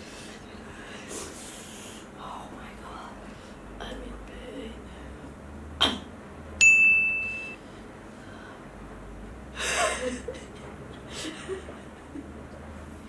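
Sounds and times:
high electronic ding: 6.6s - 7.6s
short breathy laugh: 9.6s - 12.0s.

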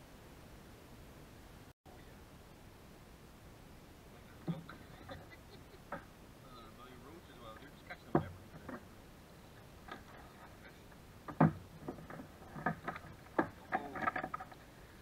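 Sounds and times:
clicks and knocks on plastic kayaks: 7.5s - 8.9s, 9.8s - 14.7s.

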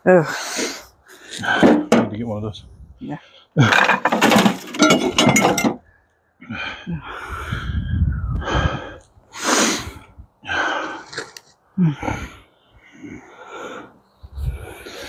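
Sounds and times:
person gasping breaths: 6.4s - 15.0s.

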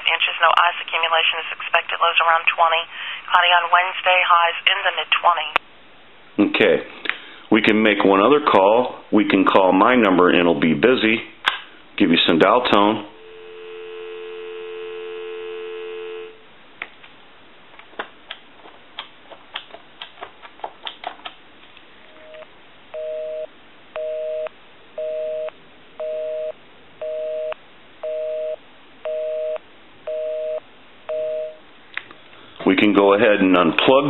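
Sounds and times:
busy signal beeping: 13.1s - 16.4s, 23.0s - 31.6s
two-tone dial tone: 13.1s - 16.4s, 22.2s - 31.6s.

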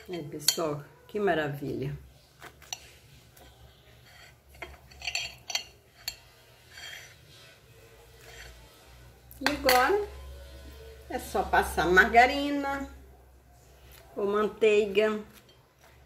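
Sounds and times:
woman speaking: 0.0s - 2.0s, 9.3s - 10.3s, 11.0s - 13.1s, 14.2s - 15.4s
knife scraping ceramic plate: 2.4s - 8.7s.

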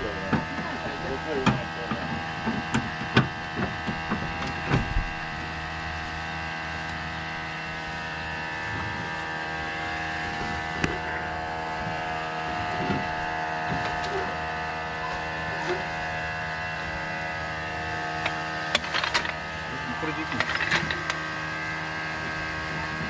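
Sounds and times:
steady mechanical hum: 0.0s - 23.0s
metallic clicks and knocks: 18.2s - 19.4s, 20.3s - 21.2s.

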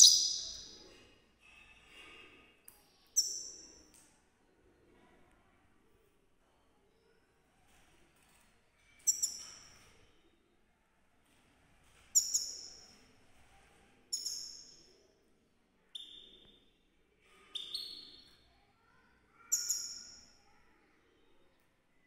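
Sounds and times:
goldfinch high calls: 0.0s - 0.6s.

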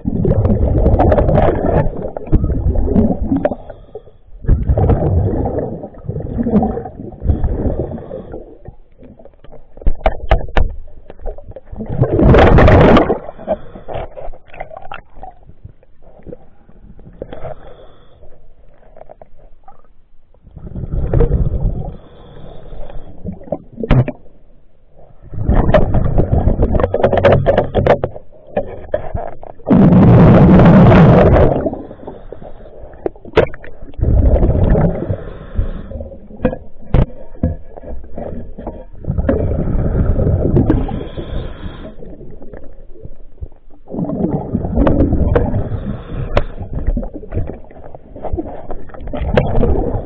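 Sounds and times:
diver's breath bubbling underwater: 0.0s - 9.2s, 11.7s - 15.4s, 20.6s - 22.4s, 29.0s - 42.9s, 43.8s - 50.0s.

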